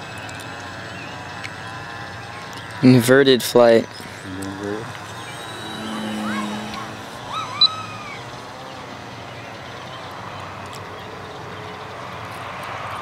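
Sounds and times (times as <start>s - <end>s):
distant electric model plane: 3.6s - 11.6s
sharp high chirp: 4.0s - 8.5s.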